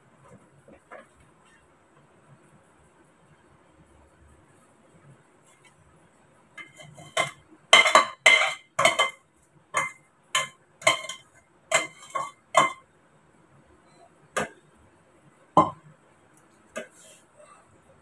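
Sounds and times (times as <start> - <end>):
metal spoon scraping steel pan: 6.6 - 9.2, 9.8 - 12.8.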